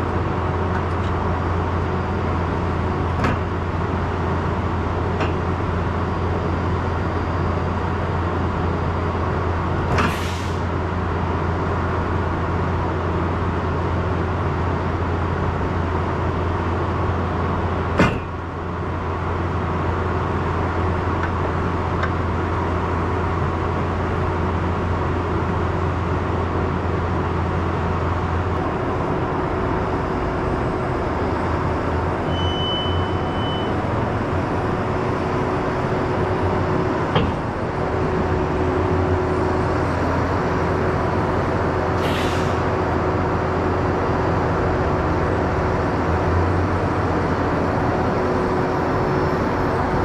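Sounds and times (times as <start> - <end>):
short high beep: 32.3 - 33.8
large vehicle engine idling: 32.9 - 50.0.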